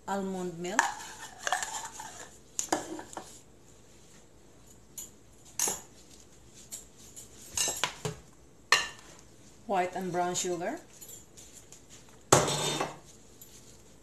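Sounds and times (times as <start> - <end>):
kitchenware clinking on counter: 12.3 - 13.1.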